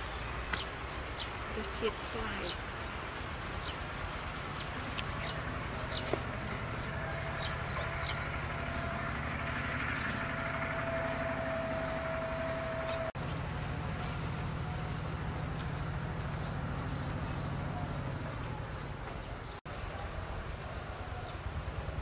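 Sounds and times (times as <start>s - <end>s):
low engine hum: 0.0s - 22.0s
thin steady whine: 6.4s - 16.2s.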